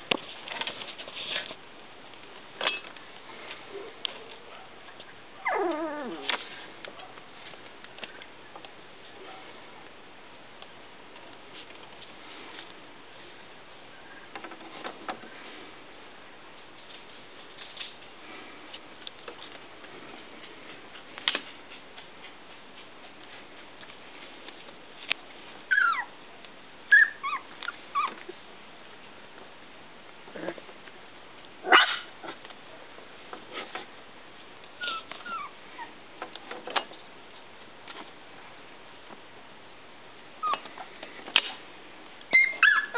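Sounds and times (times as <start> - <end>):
puppies whimpering: 5.4 - 6.3, 25.7 - 26.1.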